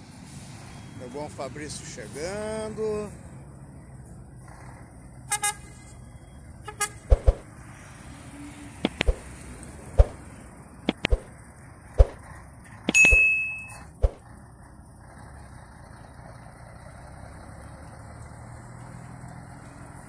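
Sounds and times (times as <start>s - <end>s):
whoosh: 7.0s - 7.4s, 8.9s - 9.3s, 10.0s - 10.2s, 10.9s - 11.3s, 12.0s - 12.2s
truck diesel engine running: 10.0s - 20.0s
mouse clicks: 10.9s - 11.3s
short chime: 13.0s - 13.9s.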